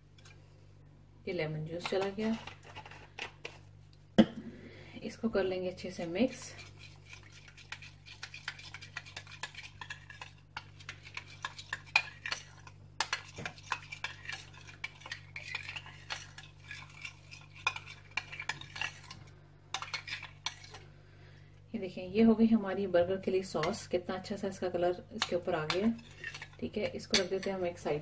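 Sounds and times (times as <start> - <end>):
spoon scraping ceramic bowl: 6.3 - 20.8, 25.2 - 27.7.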